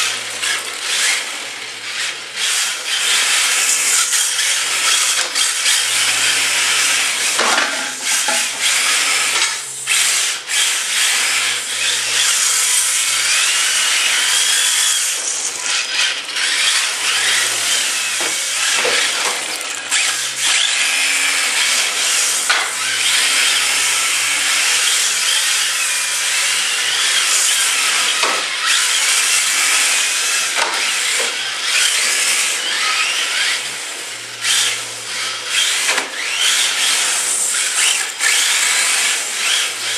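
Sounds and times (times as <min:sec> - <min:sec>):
tyres sliding on floor: 0:00.0 - 0:10.3, 0:11.2 - 0:26.5
electric motors whining: 0:00.0 - 0:39.9.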